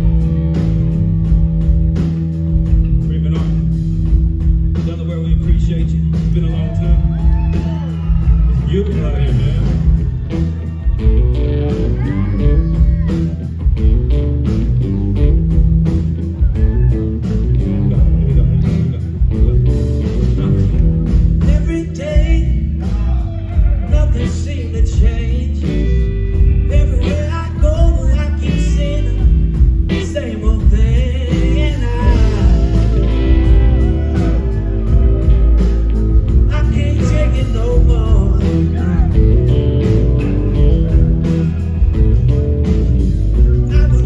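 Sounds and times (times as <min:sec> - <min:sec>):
bass guitar: 0:00.0 - 0:44.0
drum kit: 0:00.0 - 0:44.0
electric guitar: 0:09.4 - 0:44.0
man singing into microphone: 0:26.7 - 0:29.3, 0:29.9 - 0:33.2, 0:36.4 - 0:39.2, 0:43.6 - 0:44.0.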